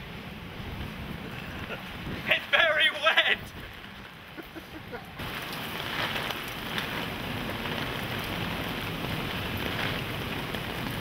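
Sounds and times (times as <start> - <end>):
heavy rain pouring: 0.0 - 11.0.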